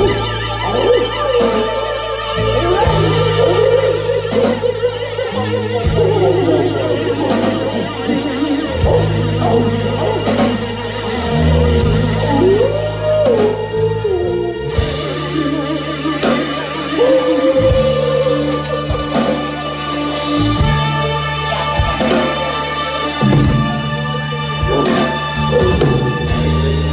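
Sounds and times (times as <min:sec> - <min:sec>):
bass notes: 0:00.0 - 0:26.9
keyboards: 0:00.0 - 0:26.9
drums and cymbal strikes: 0:14.7 - 0:26.9.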